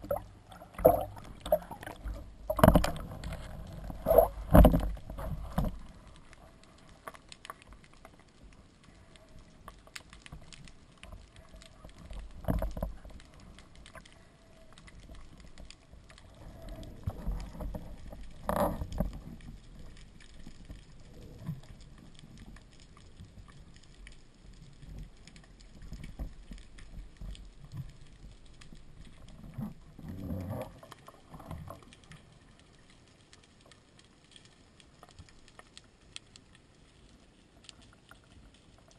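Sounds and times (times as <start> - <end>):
underwater clicks and knocks: 0.0 - 6.4, 9.8 - 22.7, 24.8 - 32.2
muffled underwater thumps: 0.8 - 3.3.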